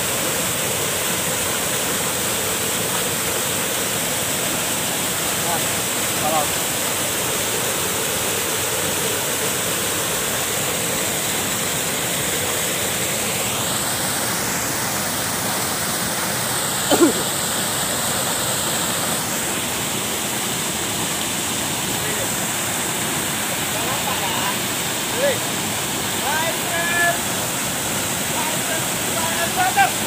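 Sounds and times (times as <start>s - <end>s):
small waterfall pouring: 0.0s - 30.0s.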